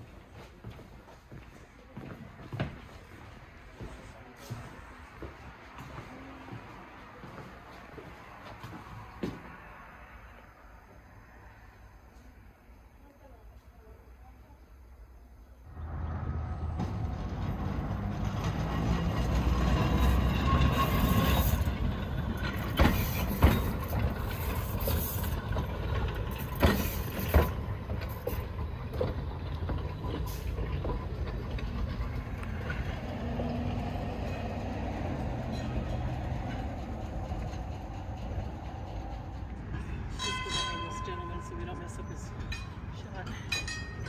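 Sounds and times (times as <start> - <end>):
railcar rumble: 0.0 - 44.0
sharp clanks: 16.8 - 33.1, 42.3 - 44.0.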